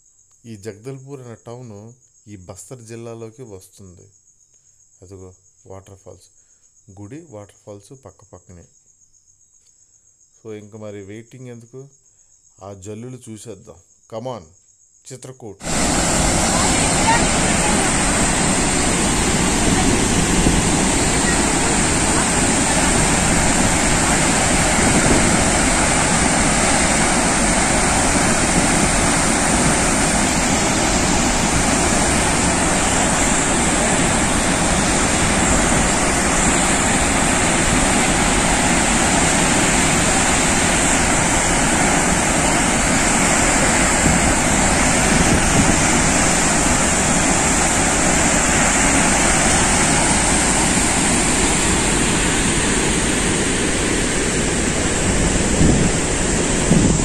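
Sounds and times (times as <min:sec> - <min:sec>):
waterfall rushing: 0:15.6 - 0:57.0.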